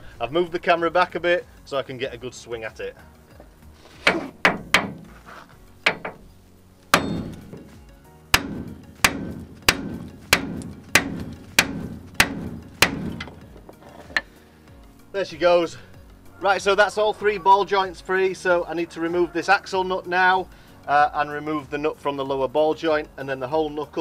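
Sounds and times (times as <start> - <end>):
hammer striking metal: 4.0 - 5.1, 5.9 - 6.3, 6.9 - 13.4.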